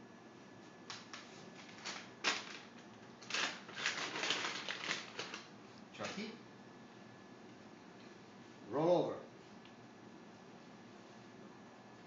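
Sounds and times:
plastic bottle crinkling: 1.6 - 5.5.

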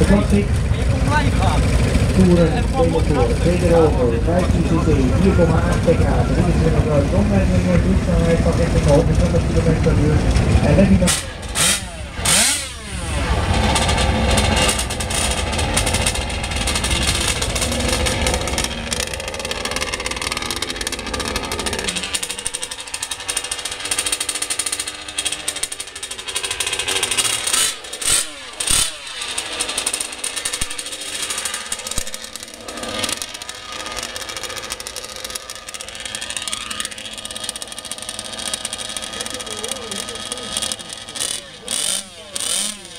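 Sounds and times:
deep engine rumble: 0.0 - 42.9
thin buzzing model engine: 11.1 - 42.9.

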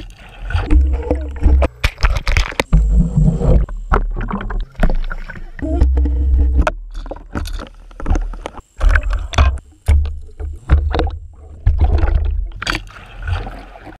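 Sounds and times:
underwater water sloshing: 0.0 - 14.0
sharp underwater knocks: 3.9 - 13.5.

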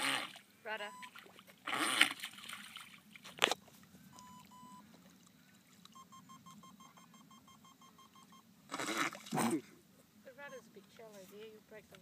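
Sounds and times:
electronic beeps: 0.8 - 1.2, 4.1 - 4.8, 5.9 - 8.5.

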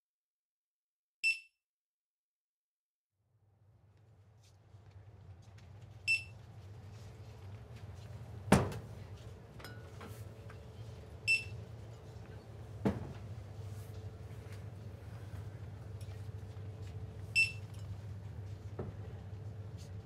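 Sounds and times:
steady low hum: 3.5 - 20.0
barcode scanner beeping: 6.1 - 6.3, 11.3 - 11.6, 17.4 - 17.6.

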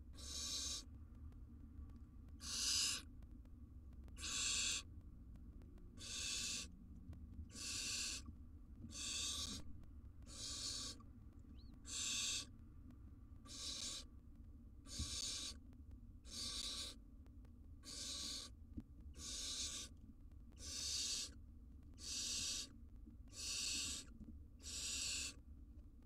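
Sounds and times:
owlet raspy hissing begging call: 0.2 - 0.8, 2.4 - 3.0, 4.2 - 4.8, 6.0 - 6.7, 7.5 - 8.2, 8.9 - 9.6, 10.3 - 11.0, 11.9 - 12.5, 13.5 - 14.1, 14.9 - 15.6, 16.3 - 17.0, 17.8 - 18.5, 19.2 - 19.9, 20.6 - 21.3, 22.0 - 22.7, 23.4 - 25.3.

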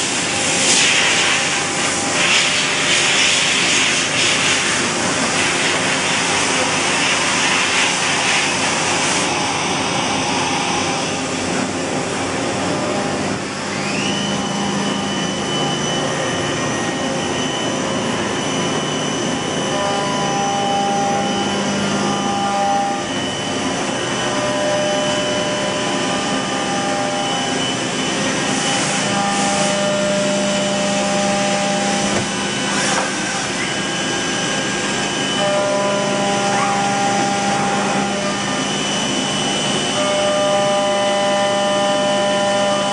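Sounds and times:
high whine: 0.0 - 42.9
machine hum and hiss: 0.0 - 42.9
lower machine tones: 9.2 - 42.9.

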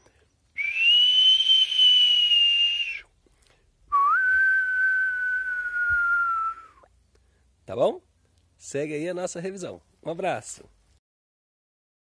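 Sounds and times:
man whistling: 0.6 - 3.1, 3.9 - 6.9.

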